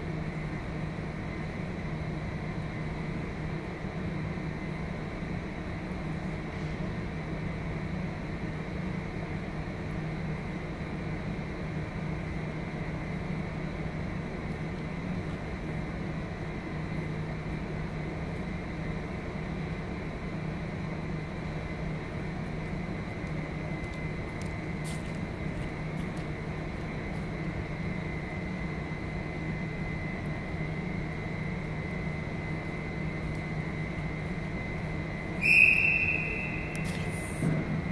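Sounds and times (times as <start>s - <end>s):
ventilation hum and hiss: 0.0s - 37.9s
thin high whine: 32.3s - 37.9s
loud high-pitched tone: 35.4s - 37.5s.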